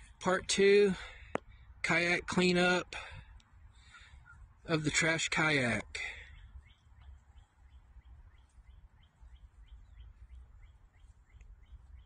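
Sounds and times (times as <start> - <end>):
bird chirping faintly: 6.2 - 12.0.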